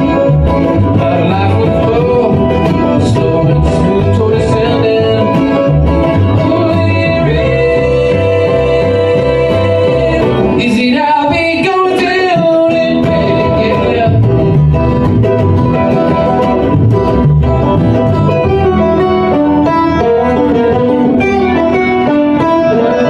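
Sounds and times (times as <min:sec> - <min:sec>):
person singing: 0:00.0 - 0:14.6
bluegrass band playing: 0:00.0 - 0:23.0
fiddle melody: 0:13.2 - 0:23.0.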